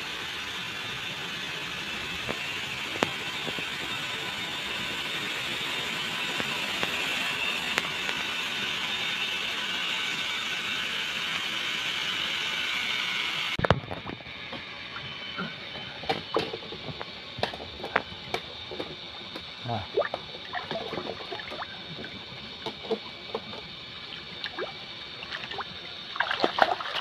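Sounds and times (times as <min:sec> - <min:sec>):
fish splashing in shallow water: 0:19.9 - 0:22.1, 0:24.1 - 0:27.0.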